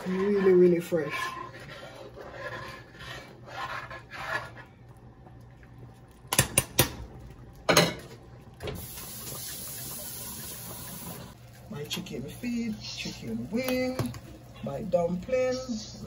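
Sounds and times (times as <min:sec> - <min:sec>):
spoon stirring thick soup: 0:00.0 - 0:08.6.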